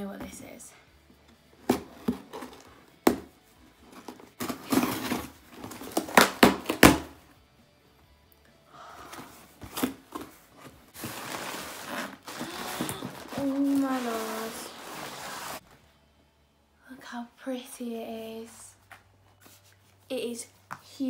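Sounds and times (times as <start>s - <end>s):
cardboard packaging tearing: 4.4s - 6.6s, 11.0s - 15.6s.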